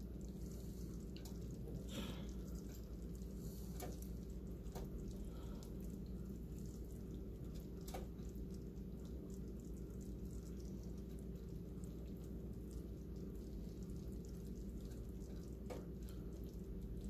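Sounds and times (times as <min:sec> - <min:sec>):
steady low hum: 0:00.0 - 0:17.0
wet drips: 0:00.0 - 0:17.0.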